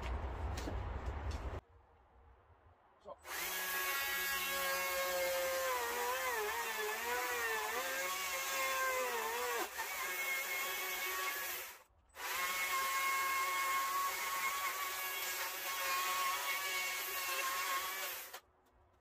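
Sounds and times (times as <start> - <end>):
power carving tool whining: 3.3 - 18.4.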